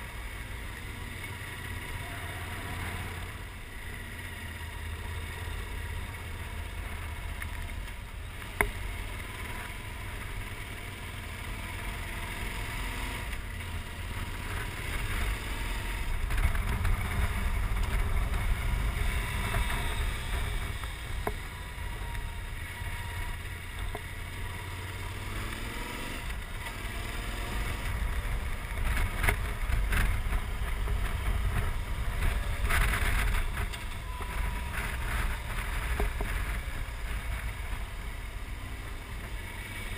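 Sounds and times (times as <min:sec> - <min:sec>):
motorcycle engine: 0:00.0 - 0:39.9
wind rumble on microphone: 0:27.3 - 0:38.4.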